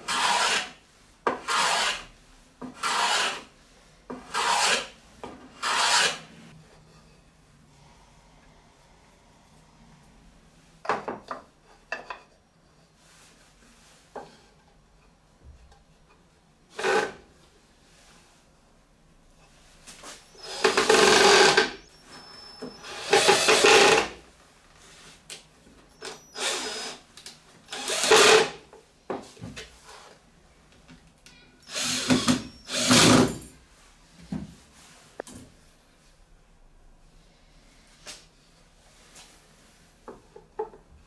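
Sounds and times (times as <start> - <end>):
cordless drill driving screws: 20.3 - 21.8, 22.8 - 24.2, 26.0 - 27.0, 27.7 - 28.6, 31.7 - 33.4.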